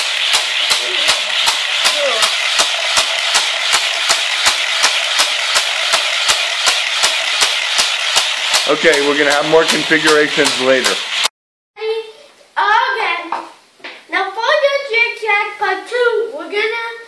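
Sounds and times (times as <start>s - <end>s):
regular clicks: 0.0s - 11.3s
toy booster whirring rattle: 0.0s - 11.3s.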